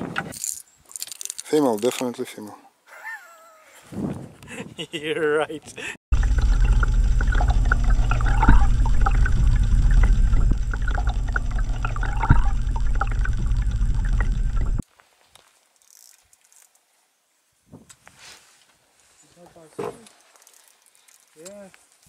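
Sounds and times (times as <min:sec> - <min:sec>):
water rushing and bubbling: 0:06.1 - 0:14.8.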